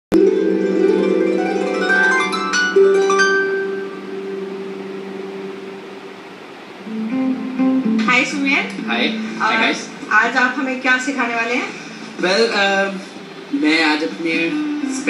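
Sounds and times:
harp-like plucked strings: 0:00.1 - 0:05.5.

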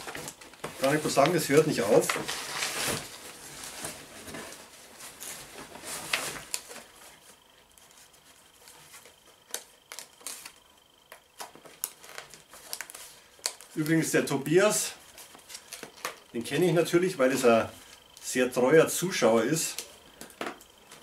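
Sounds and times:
packaging rustling in cardboard box: 0:00.0 - 0:09.2.

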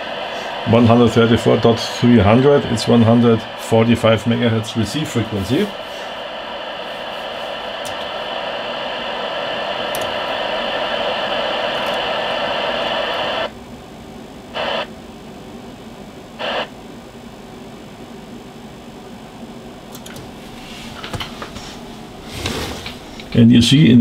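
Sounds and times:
radio receiver hiss: 0:00.0 - 0:13.5, 0:14.5 - 0:15.0, 0:16.2 - 0:16.8, 0:19.8 - 0:24.0.

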